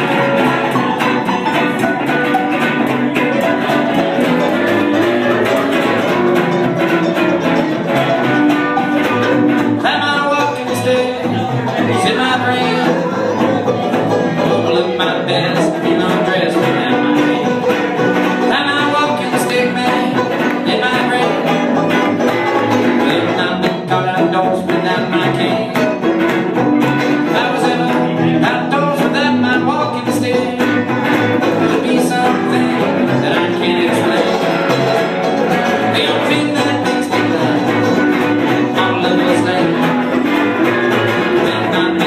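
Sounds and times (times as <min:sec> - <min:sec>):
acoustic string band playing: 0:00.0 - 0:42.0.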